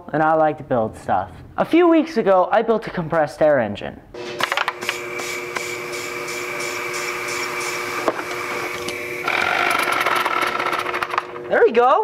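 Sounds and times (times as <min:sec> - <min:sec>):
air compressor humming: 0:04.2 - 0:11.8
air hissing through hose: 0:04.8 - 0:09.0.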